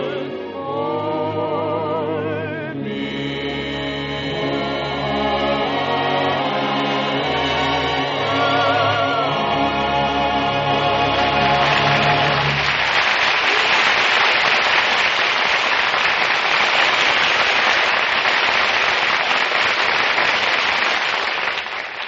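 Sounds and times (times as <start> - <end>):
audience applauding: 11.0 - 22.0.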